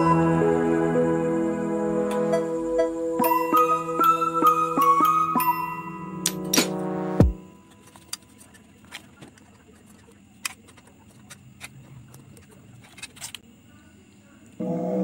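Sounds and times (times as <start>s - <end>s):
background music: 0.0s - 7.7s.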